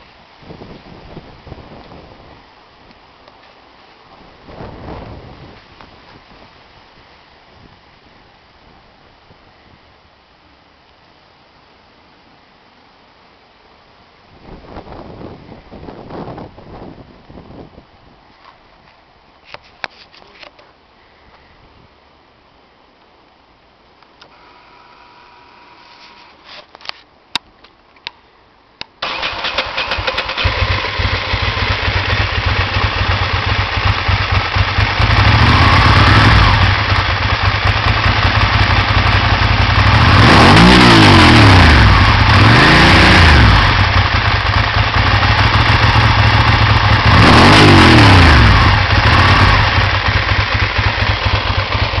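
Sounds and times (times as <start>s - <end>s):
motorcycle engine idling and revving: 29.0s - 52.0s.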